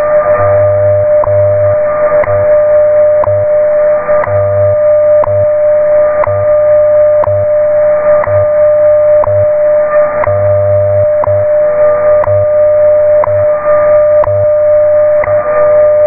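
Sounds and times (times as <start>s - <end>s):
low pulsing hum: 0.0s - 16.0s
steady radio tone: 0.0s - 16.0s.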